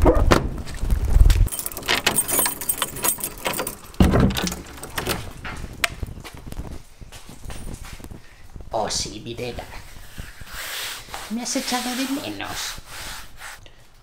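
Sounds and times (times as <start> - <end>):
door lever handle worked: 1.5 - 5.6
keys jangling and clicking: 1.5 - 5.6.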